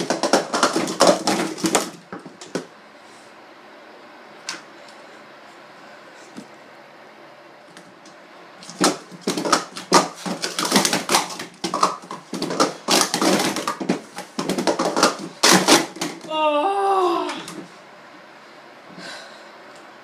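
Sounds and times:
plastic cups clattering: 0.0s - 2.7s, 8.6s - 16.3s.

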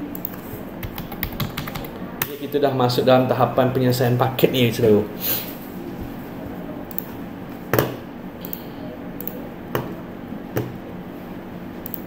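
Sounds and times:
low room hum: 0.0s - 12.0s
computer mouse clicks: 0.1s - 1.8s, 6.9s - 7.1s, 8.4s - 9.4s.

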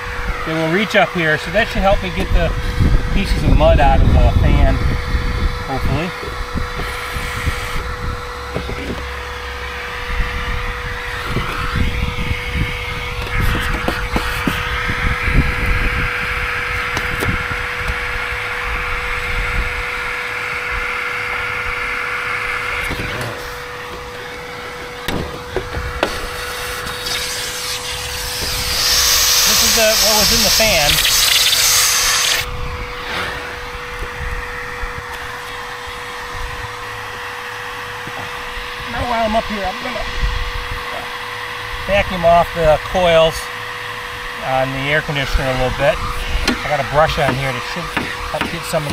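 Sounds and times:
vacuum cleaner running: 0.0s - 48.9s
short knocks: 46.4s - 48.9s.

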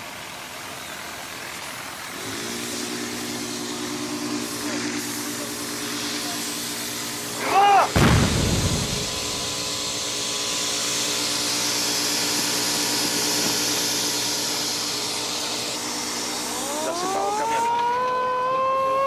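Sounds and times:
mechanical rushing hiss: 1.4s - 17.1s
rising howling tone: 8.2s - 10.2s.

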